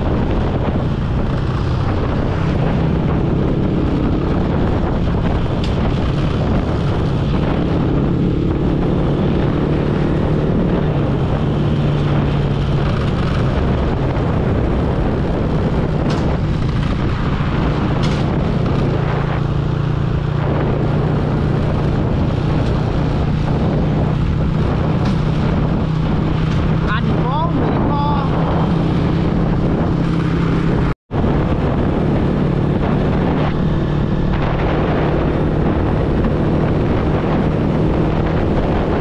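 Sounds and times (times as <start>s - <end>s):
wind rush on microphone: 0.0s - 39.0s.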